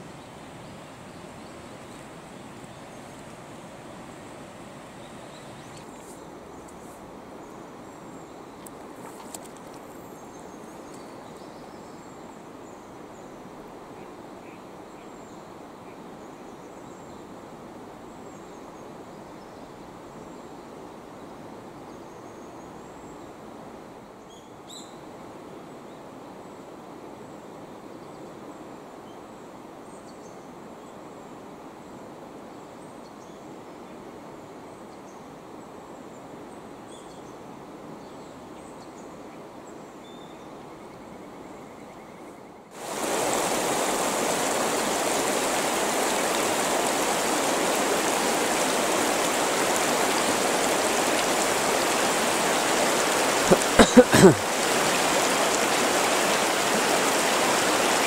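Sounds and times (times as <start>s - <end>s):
river water flowing: 0.0s - 21.8s, 42.7s - 58.0s
faint bird chirps: 5.0s - 6.8s.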